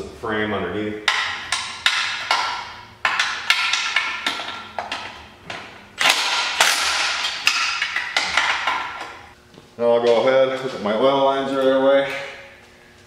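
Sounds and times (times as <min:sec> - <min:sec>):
metal knocks and clanks: 0:01.1 - 0:09.4.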